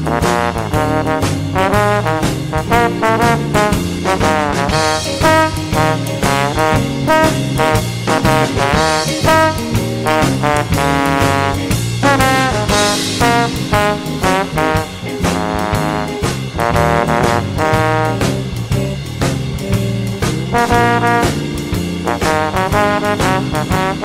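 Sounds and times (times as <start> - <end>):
backing track with bass and drums: 0.0 - 24.0
trombone blues solo: 0.0 - 24.0.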